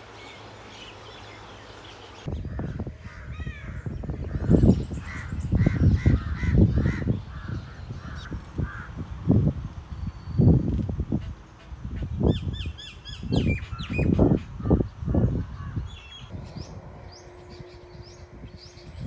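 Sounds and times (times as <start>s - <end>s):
small birds chirping: 0.0s - 8.9s
crows cawing: 2.5s - 9.0s.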